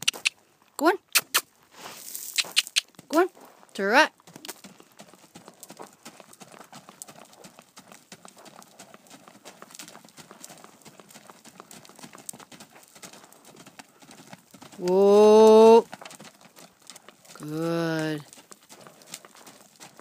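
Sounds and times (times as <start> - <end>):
hoofbeats on dirt: 0.0 - 0.4, 1.2 - 20.0.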